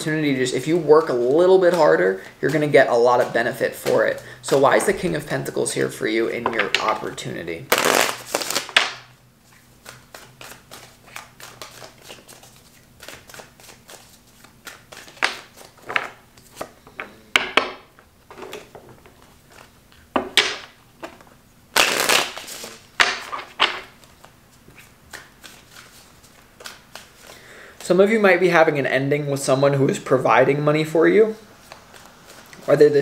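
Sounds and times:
cards being shuffled: 1.2 - 5.0, 7.7 - 16.8, 18.5 - 28.0, 31.6 - 33.0.

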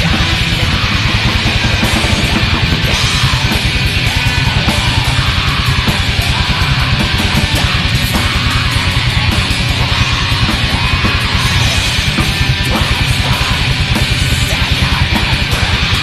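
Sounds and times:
distorted electric guitars: 0.0 - 16.0
fast drumming: 0.0 - 16.0.

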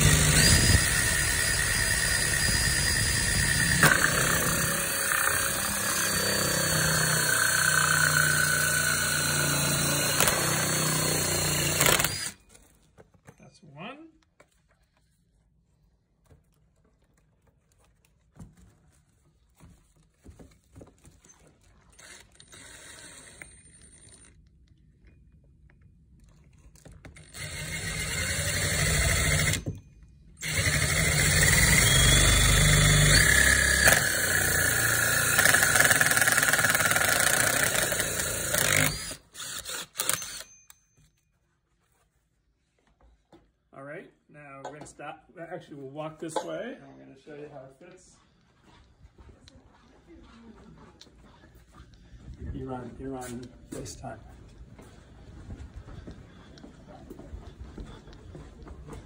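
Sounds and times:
cordless drill cutting plastic sheet: 0.0 - 12.5, 21.9 - 24.4, 27.1 - 29.8, 30.4 - 40.5.

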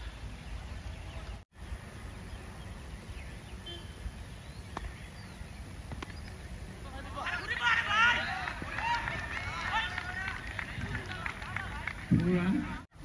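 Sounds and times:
faint bird chirps: 0.0 - 6.6.

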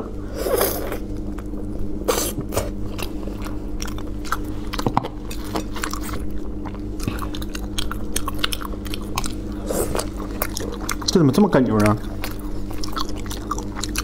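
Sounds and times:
wet chewing and lip smacks: 3.0 - 14.0.

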